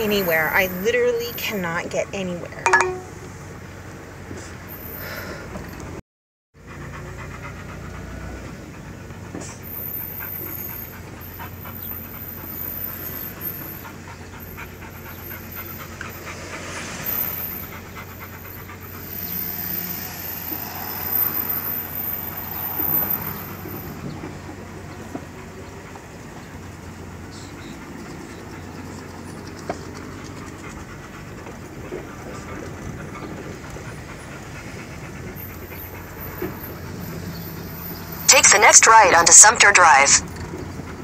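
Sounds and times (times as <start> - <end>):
van engine and road noise: 0.0 - 6.0, 6.6 - 41.0
dog panting: 6.6 - 20.0, 23.2 - 38.3.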